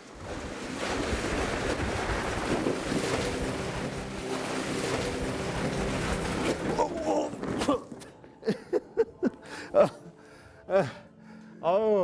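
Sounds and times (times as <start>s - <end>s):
plastic mat scraping on ice: 0.0s - 8.0s.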